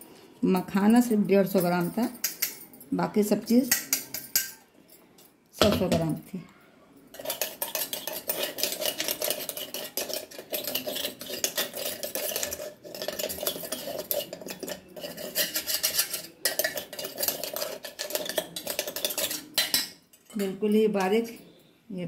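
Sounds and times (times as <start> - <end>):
metal spoon scraping steel jar: 1.1 - 2.7, 3.5 - 4.6, 7.1 - 21.6.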